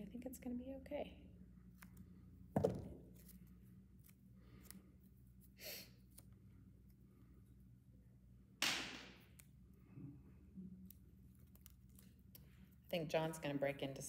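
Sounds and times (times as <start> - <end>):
faint low hum: 0.0 - 14.0
sharp knock on tabletop: 2.6 - 3.0.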